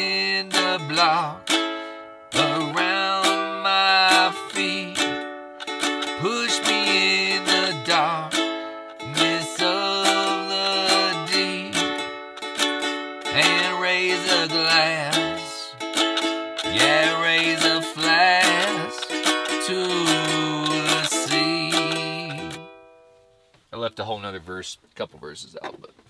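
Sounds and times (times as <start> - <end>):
man singing: 0.0 - 1.6, 2.3 - 5.2, 6.1 - 12.0, 13.3 - 15.8, 16.6 - 22.6
ukulele strumming chords: 0.0 - 23.3.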